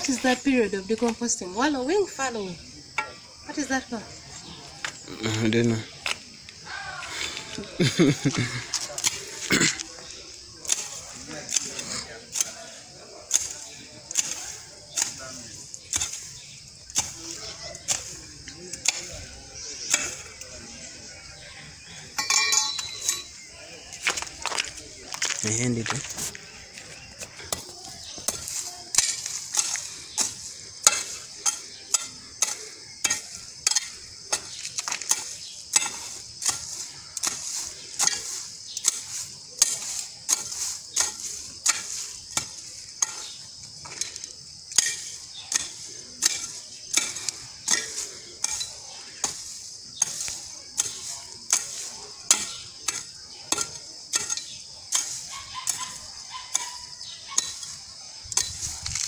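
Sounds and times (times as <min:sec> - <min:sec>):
hand hoe chopping soil: 0:10.6 - 0:20.5, 0:27.2 - 0:59.0.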